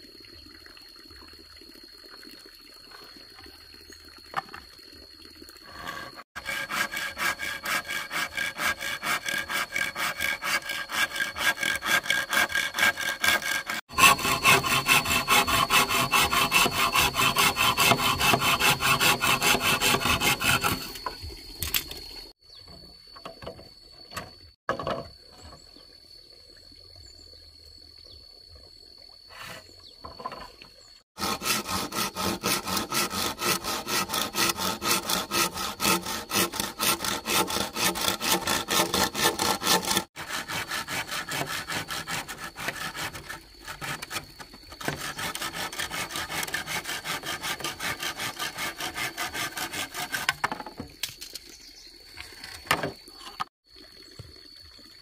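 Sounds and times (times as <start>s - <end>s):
hand saw cutting bamboo: 5.7s - 21.9s, 31.2s - 50.8s.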